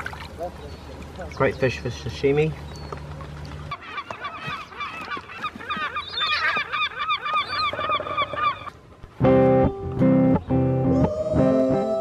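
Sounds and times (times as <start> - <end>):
gulls calling: 0.0 - 8.9.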